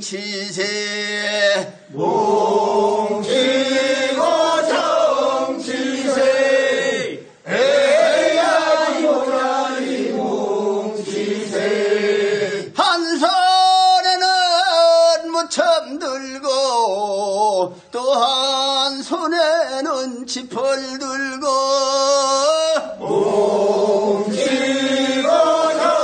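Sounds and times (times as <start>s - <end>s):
group of voices singing: 1.0s - 12.8s, 22.8s - 26.0s
lead voice singing long line: 1.0s - 13.9s, 22.3s - 26.0s.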